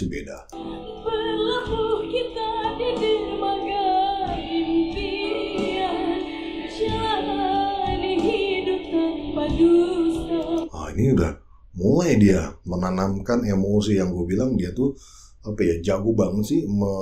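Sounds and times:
backing music: 0.5s - 11.1s
woman singing a ballad: 0.6s - 10.7s.

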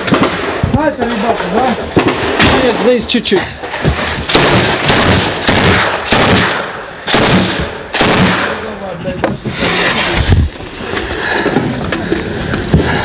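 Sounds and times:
gunshots echoing: 0.0s - 3.1s, 3.7s - 8.8s.

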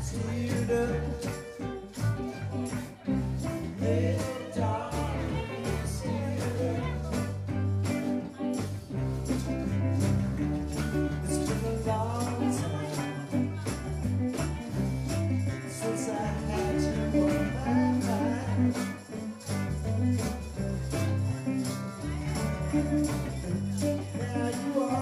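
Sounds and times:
lead vocal singing: 0.0s - 1.8s, 3.2s - 7.6s, 11.3s - 13.8s, 15.5s - 19.3s, 24.0s - 25.0s
jingling hand percussion: 0.0s - 25.0s
reggae band playing: 0.0s - 25.0s.

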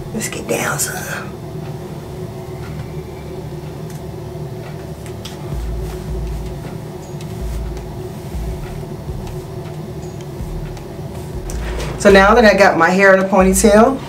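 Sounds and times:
air conditioning hum: 0.0s - 14.0s
hands rustling hair: 4.8s - 12.6s
low thuds: 5.1s - 12.7s.

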